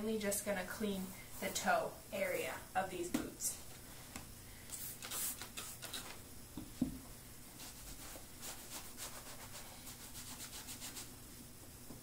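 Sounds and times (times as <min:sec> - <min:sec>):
rubbing and handling noises: 0:01.2 - 0:02.6, 0:04.7 - 0:06.2, 0:07.5 - 0:11.2.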